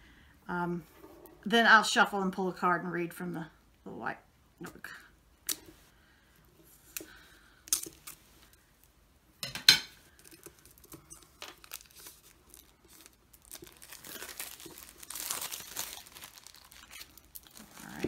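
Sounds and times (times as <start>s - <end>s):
cellophane crinkling and tearing: 10.1s - 18.0s.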